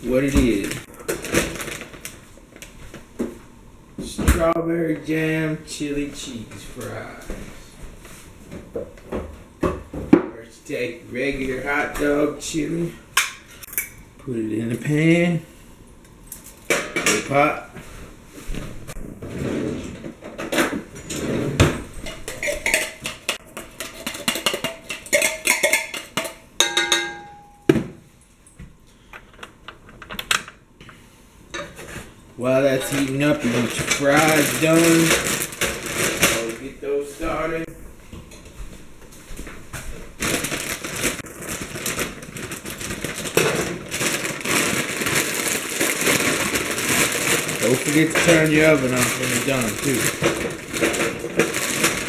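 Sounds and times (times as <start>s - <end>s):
plastic bag crinkling: 0.2s - 2.8s, 32.7s - 37.4s, 40.0s - 52.0s.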